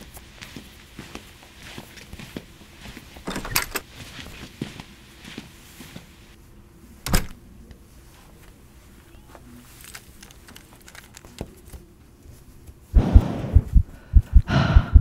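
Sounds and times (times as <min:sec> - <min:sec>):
light footsteps: 0:00.0 - 0:06.2
door shutting with thud: 0:03.2 - 0:03.8, 0:07.0 - 0:07.4
door pushed open with clatter: 0:03.2 - 0:03.9, 0:07.0 - 0:07.4.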